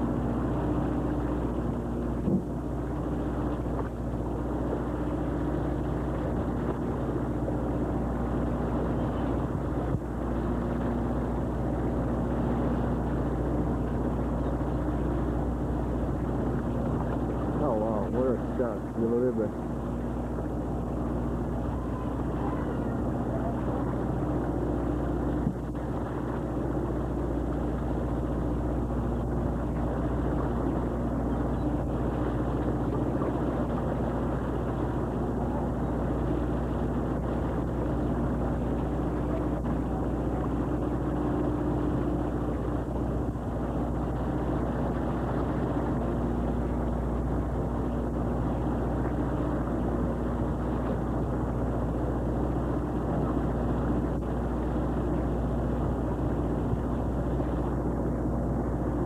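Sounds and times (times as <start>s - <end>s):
boat engine droning: 0.0s - 59.0s.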